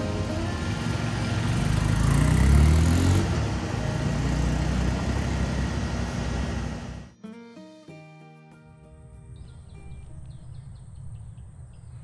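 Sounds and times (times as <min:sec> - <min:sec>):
vehicle engine revving: 0:00.0 - 0:07.1.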